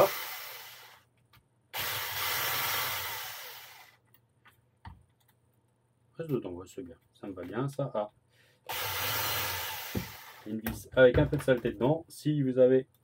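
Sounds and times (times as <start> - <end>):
cordless drill spinning: 0.0 - 1.1, 1.7 - 4.0, 8.7 - 10.6.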